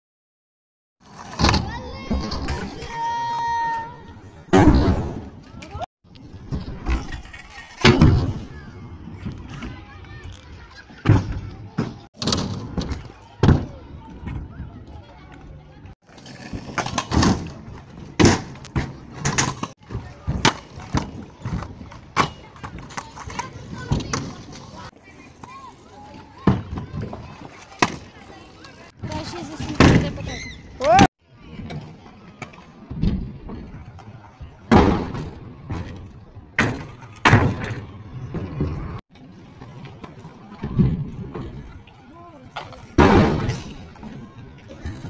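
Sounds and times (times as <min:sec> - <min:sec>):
scooters landing on ramps: 0:06.4 - 0:08.6, 0:11.0 - 0:14.4, 0:16.2 - 0:24.6, 0:34.7 - 0:39.0, 0:42.6 - 0:43.9.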